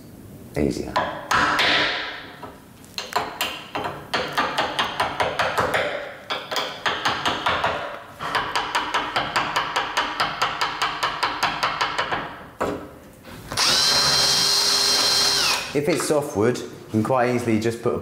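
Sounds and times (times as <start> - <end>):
hammer tapping chisel handle: 3.0 - 12.8.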